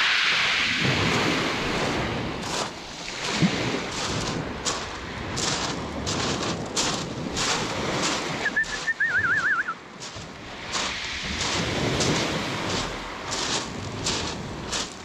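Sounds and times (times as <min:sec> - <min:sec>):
wind rumble on microphone: 0:00.0 - 0:15.0
footsteps crunching on pebbles: 0:02.4 - 0:15.0
warbling whistle: 0:08.4 - 0:09.8.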